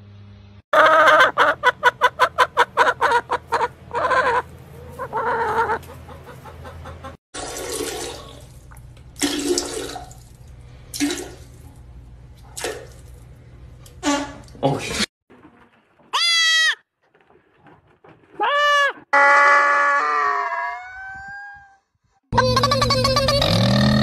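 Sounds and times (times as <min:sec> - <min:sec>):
hen clucking: 0:00.8 - 0:07.2.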